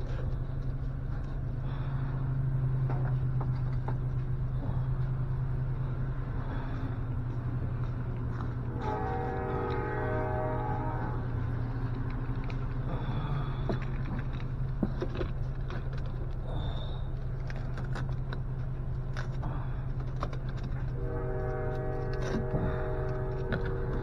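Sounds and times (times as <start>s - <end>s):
steady low hum: 0.0s - 24.0s
horn-like chord of steady tones: 8.6s - 11.7s, 21.0s - 24.0s.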